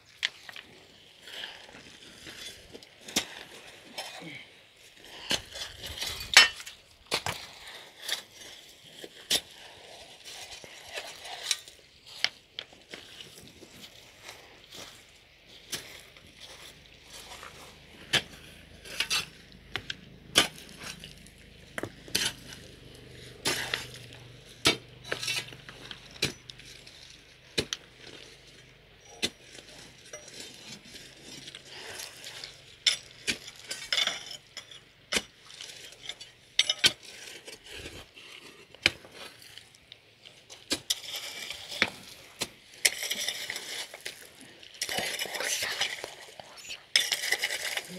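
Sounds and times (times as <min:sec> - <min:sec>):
gravel scraping: 0:00.1 - 0:47.9
metal tools striking stones: 0:06.2 - 0:06.7, 0:24.7 - 0:26.8.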